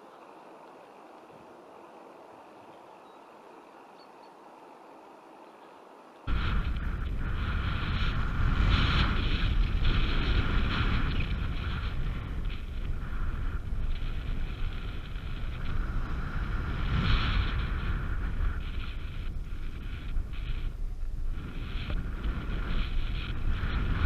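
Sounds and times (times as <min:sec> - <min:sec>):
wind buffeting microphone: 0:06.2 - 0:24.0.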